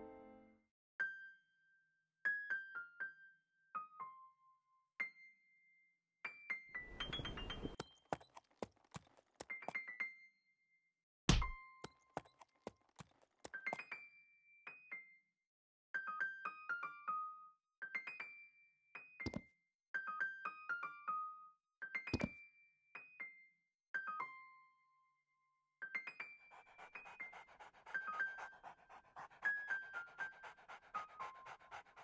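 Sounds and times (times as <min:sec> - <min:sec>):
light piano-like keyboard music: 0:00.0 - 0:00.6.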